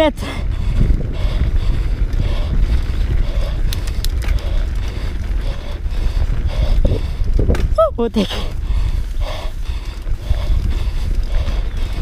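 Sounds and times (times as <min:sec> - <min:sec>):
tyre and frame rattle: 0:00.0 - 0:12.0
wind buffeting microphone: 0:00.0 - 0:12.0
sharp clicks: 0:03.6 - 0:04.6.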